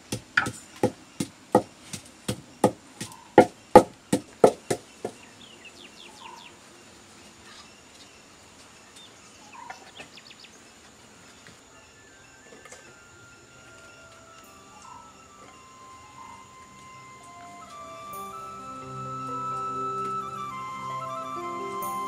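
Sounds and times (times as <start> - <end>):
birds chirping faintly: 0.0 - 22.0.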